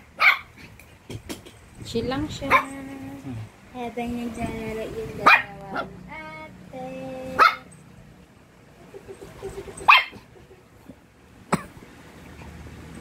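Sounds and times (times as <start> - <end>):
dog barking: 0.2 - 0.5, 5.2 - 5.9, 7.4 - 7.7, 9.8 - 10.3.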